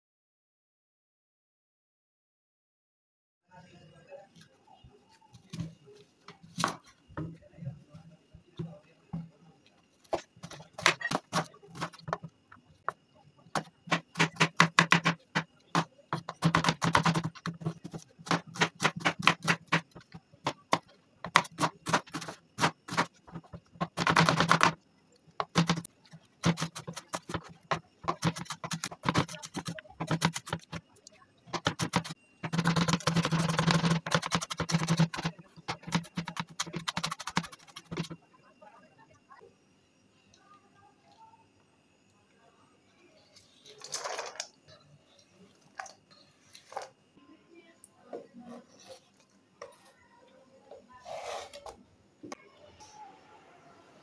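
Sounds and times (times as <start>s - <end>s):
knife chopping on cutting board: 13.6s - 20.0s.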